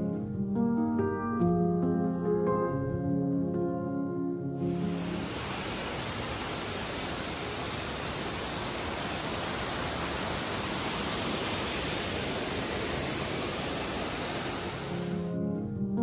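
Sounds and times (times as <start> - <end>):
waterfall rushing: 4.7 - 15.4.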